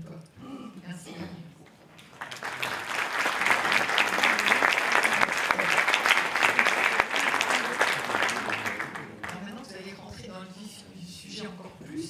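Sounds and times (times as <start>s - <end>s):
audience applauding: 1.9s - 9.5s.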